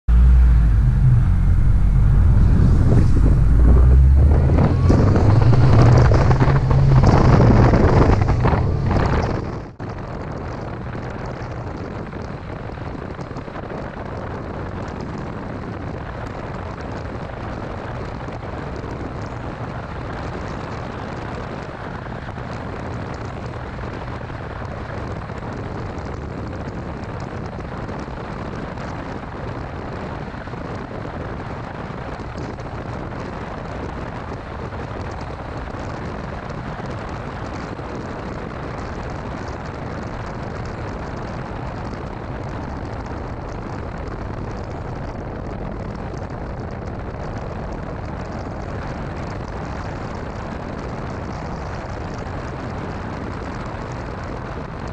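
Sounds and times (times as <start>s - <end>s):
car engine revving: 0.0s - 9.8s
low drone: 0.0s - 9.8s
road noise: 0.0s - 14.1s, 15.1s - 54.9s
rushing wind: 0.0s - 54.9s.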